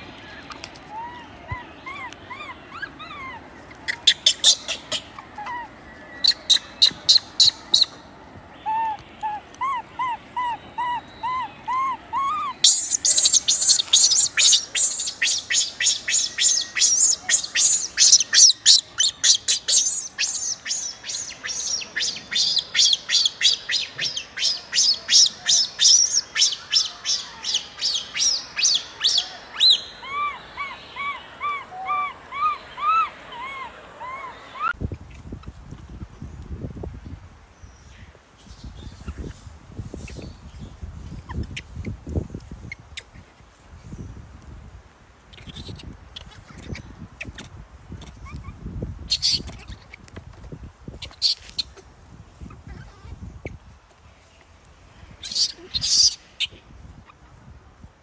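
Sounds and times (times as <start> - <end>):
infant monkey crying: 0.9 - 7.8, 8.6 - 34.8, 55.2 - 56.2.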